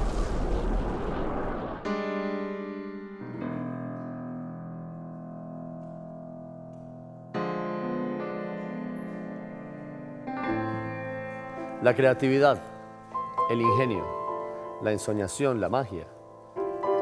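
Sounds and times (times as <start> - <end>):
noisy rush: 0.0 - 1.9
slow piano chords: 1.8 - 17.0.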